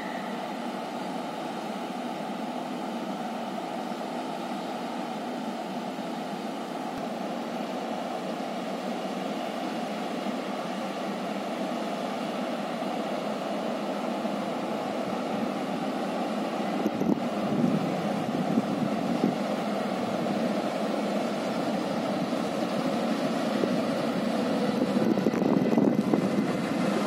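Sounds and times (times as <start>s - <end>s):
train rushing rumble: 7.6s - 27.0s.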